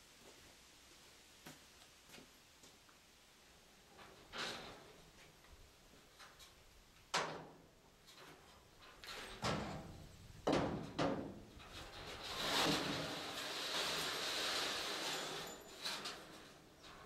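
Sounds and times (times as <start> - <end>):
rough scraping noise: 11.7 - 16.6.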